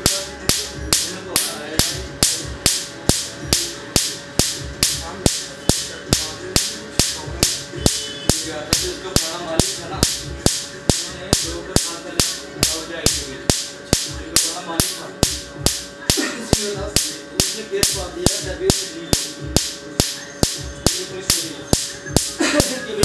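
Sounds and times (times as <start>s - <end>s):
laser handpiece snapping: 0.0s - 22.7s
background music: 0.0s - 23.0s.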